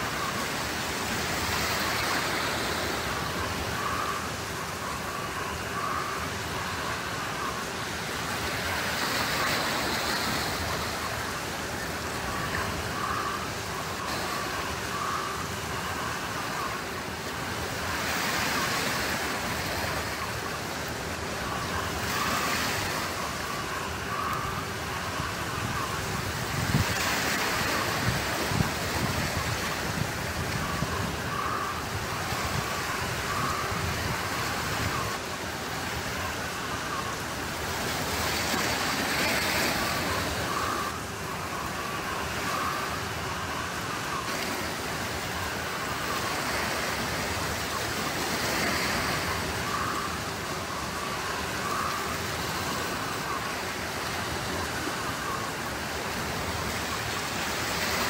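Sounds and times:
waves washing onto pebbles: 0.0s - 58.0s.

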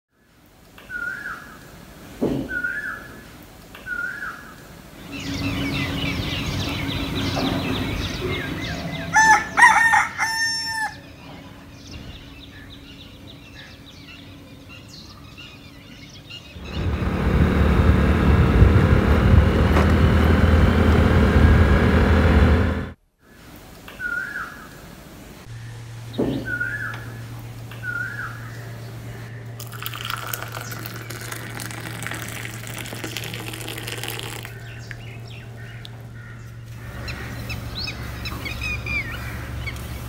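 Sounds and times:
small birds chirping: 2.5s - 9.4s, 25.6s - 40.0s
loud rumble with low hum: 5.1s - 9.1s, 16.4s - 23.0s, 25.5s - 40.0s
rooster crowing: 8.8s - 11.1s.

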